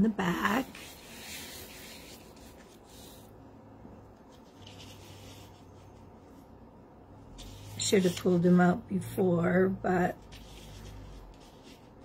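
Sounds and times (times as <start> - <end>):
paper rustling: 4.3 - 6.0, 10.2 - 12.0.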